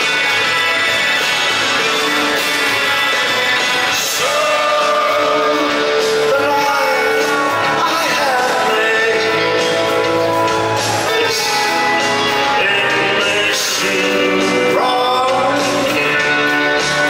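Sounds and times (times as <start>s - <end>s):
live rock band playing: 0.0s - 17.0s
man singing: 2.4s - 10.3s, 10.9s - 17.0s.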